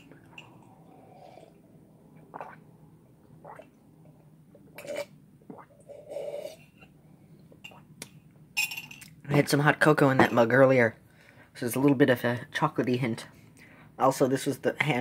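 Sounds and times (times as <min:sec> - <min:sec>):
person sipping and swallowing: 0:00.0 - 0:07.0.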